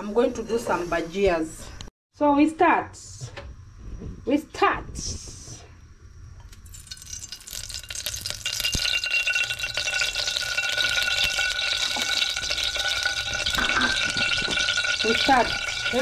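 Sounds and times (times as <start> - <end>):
oil sizzling and crackling: 6.4 - 16.0.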